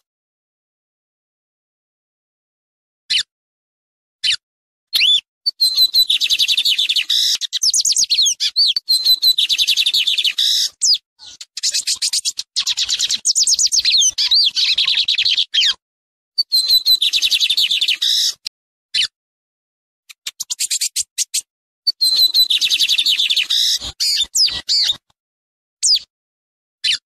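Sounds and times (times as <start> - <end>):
bird singing high notes: 5.0 - 11.0, 16.4 - 18.4, 21.9 - 25.0.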